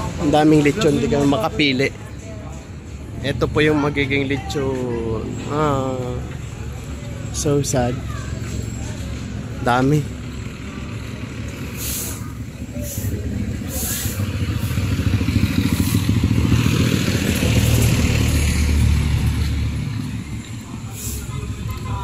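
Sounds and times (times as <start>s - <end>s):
street traffic noise: 0.0s - 22.0s
motorcycle engine running: 6.3s - 22.0s.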